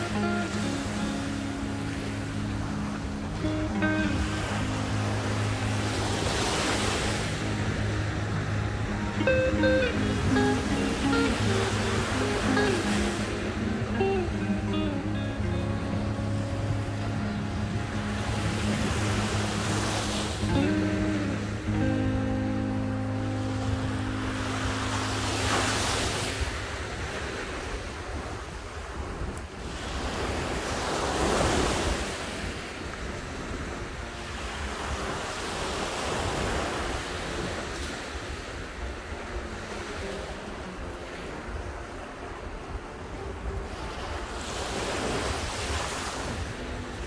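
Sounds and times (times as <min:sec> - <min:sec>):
waves breaking on beach: 0:00.0 - 0:47.0
wind rumbling on microphone: 0:00.0 - 0:47.0.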